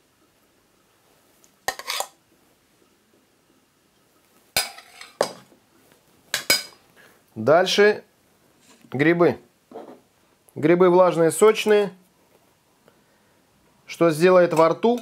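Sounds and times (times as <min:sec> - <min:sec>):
metal spoon scraping ceramic plate: 0:01.7 - 0:02.2, 0:04.6 - 0:05.2.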